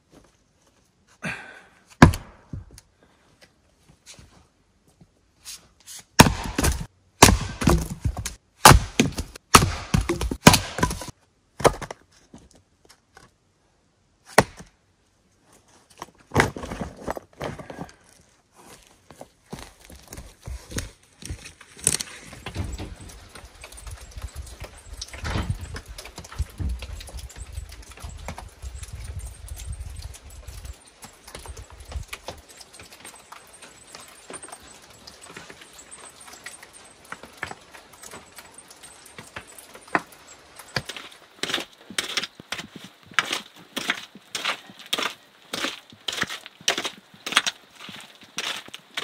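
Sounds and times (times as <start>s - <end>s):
hand digging tool scraping dirt: 5.4s - 11.9s, 39.2s - 49.0s.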